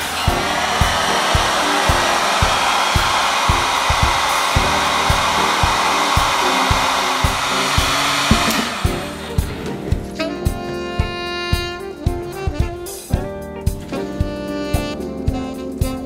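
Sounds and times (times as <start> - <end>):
heat gun fan hissing: 0.0 - 10.3.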